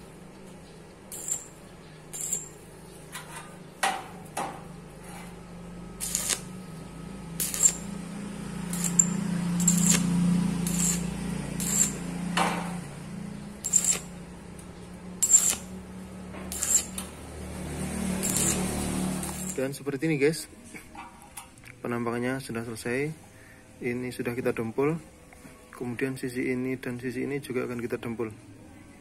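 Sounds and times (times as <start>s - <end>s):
welding arc crackle: 1.1s - 2.6s, 6.0s - 6.6s, 7.4s - 12.1s, 13.6s - 14.4s, 15.2s - 15.8s, 16.5s - 17.1s, 18.1s - 19.6s.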